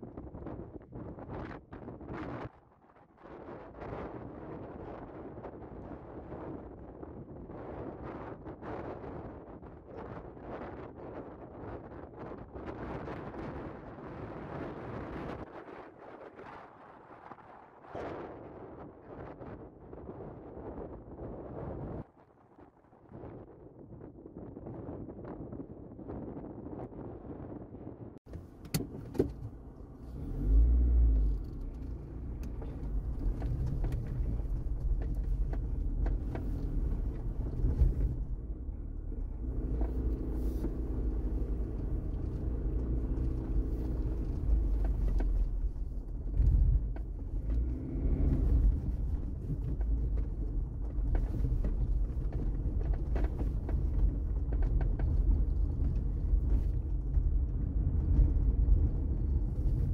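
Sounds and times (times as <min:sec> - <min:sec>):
car engine rumble: 0:28.2 - 0:59.9
road noise: 0:28.3 - 0:59.9.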